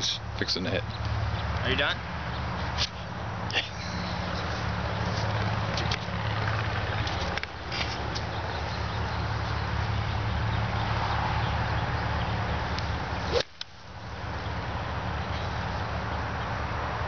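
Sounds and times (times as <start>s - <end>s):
rushing background noise: 0.0s - 17.0s
golf club striking ball: 13.3s - 13.7s.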